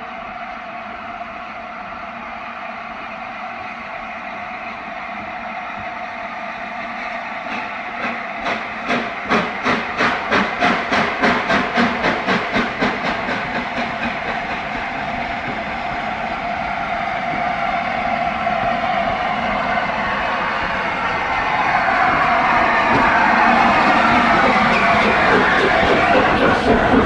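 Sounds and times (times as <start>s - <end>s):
steam locomotive exhaust beats: 6.8s - 27.0s
steam hissing: 7.5s - 15.6s, 23.0s - 27.0s.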